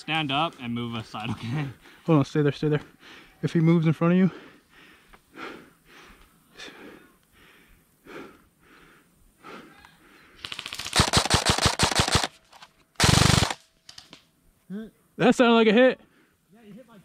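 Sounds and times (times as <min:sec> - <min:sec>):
airsoft guns firing full-auto: 0:10.4 - 0:14.1.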